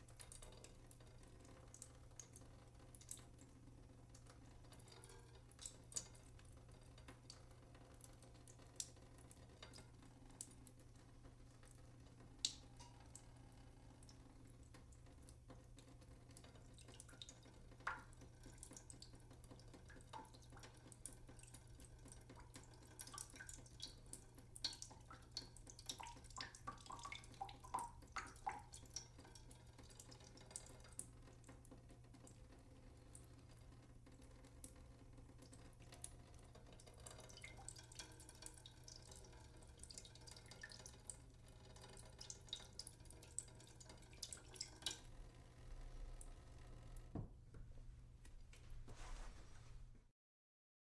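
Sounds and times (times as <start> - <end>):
water dripping: 0.0 - 48.7.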